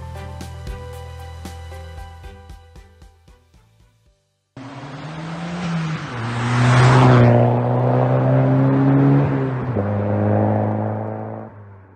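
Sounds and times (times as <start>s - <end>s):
car engine running: 4.6s - 11.4s.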